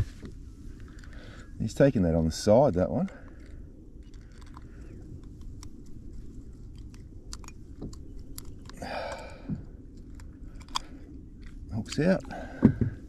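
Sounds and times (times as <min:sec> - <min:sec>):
pliers clicking and scraping: 0:06.7 - 0:09.3, 0:09.9 - 0:12.1.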